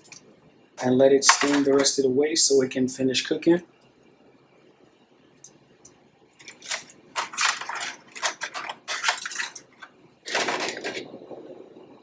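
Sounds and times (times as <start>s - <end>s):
tongs scraping clatter: 6.4s - 11.0s.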